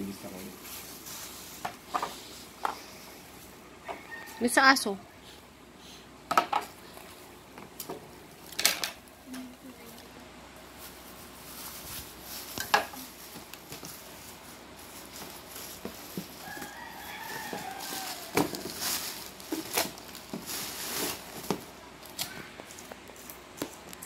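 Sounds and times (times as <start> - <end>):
plastic wrap crinkling: 10.6 - 24.0.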